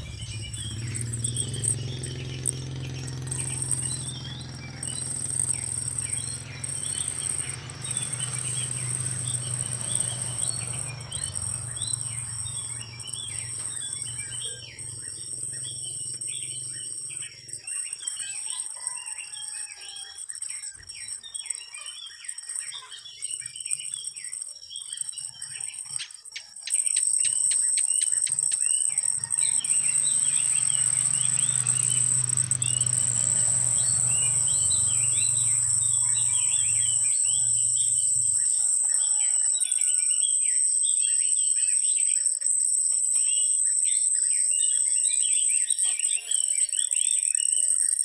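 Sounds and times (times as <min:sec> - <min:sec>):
low hum: 0:00.0 - 0:17.2, 0:28.4 - 0:38.5
birds chirping: 0:00.0 - 0:48.0
high-pitched insect drone: 0:00.0 - 0:48.0.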